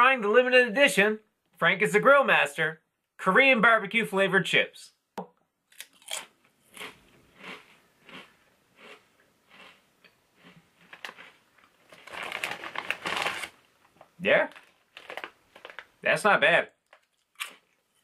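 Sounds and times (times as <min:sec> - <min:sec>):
potato chip crunching: 0:05.7 - 0:13.6, 0:14.5 - 0:16.0, 0:16.8 - 0:18.0.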